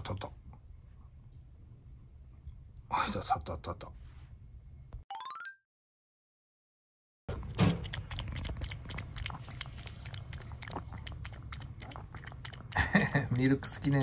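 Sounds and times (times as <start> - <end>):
dog lapping milk: 7.3 - 14.0.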